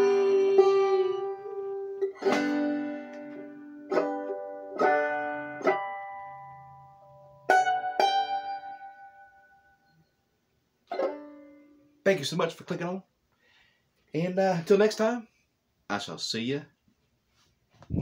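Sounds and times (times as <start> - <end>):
banjo strummed chords: 0.0 - 9.5, 10.9 - 11.8.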